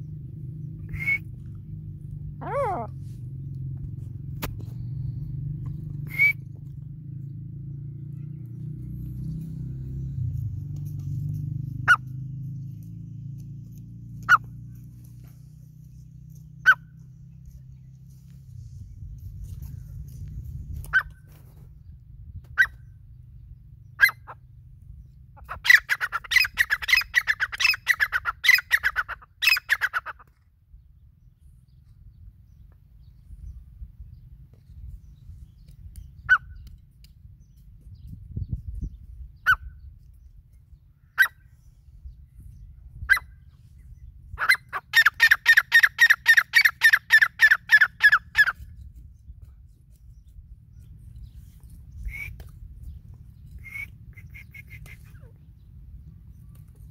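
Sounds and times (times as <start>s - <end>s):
francolin calling: 6.0s - 6.4s, 44.4s - 48.6s.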